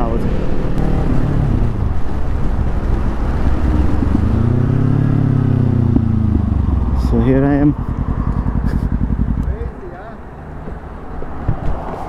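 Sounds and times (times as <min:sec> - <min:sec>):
wind rumble on microphone: 0:00.0 - 0:09.6
motorcycle engine: 0:00.4 - 0:11.3.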